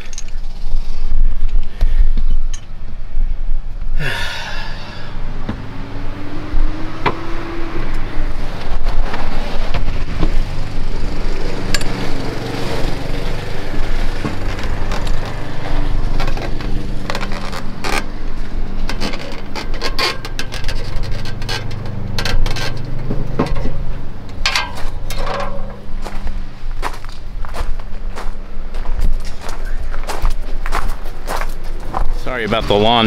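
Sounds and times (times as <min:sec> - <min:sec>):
lawnmower engine running: 0:09.9 - 0:26.7
sharp clicks and knocks: 0:11.7 - 0:12.1, 0:13.4 - 0:26.2.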